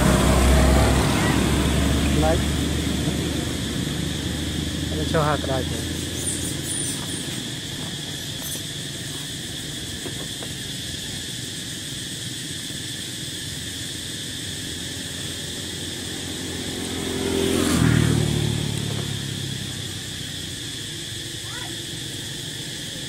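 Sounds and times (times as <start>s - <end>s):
motor vehicle passing by: 0.0s - 9.4s, 14.2s - 23.0s.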